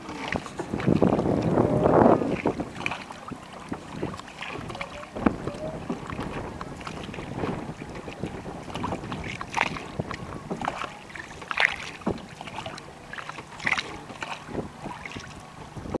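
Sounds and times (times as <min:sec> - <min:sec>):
boat knocks: 0:00.0 - 0:16.0
water splashes: 0:00.0 - 0:16.0.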